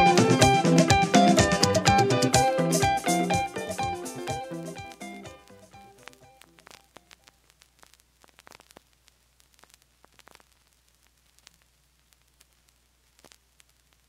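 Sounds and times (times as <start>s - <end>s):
vinyl clicks and pops: 3.1s - 14.0s.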